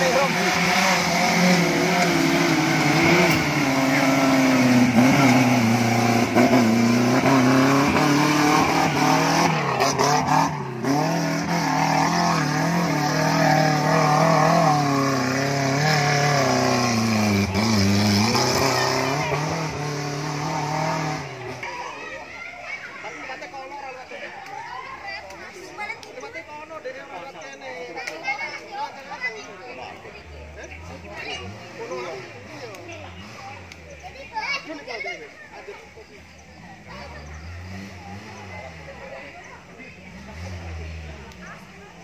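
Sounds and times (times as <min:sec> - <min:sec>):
engine revving hard: 0:00.0 - 0:21.7, 0:30.2 - 0:35.0, 0:36.5 - 0:42.0.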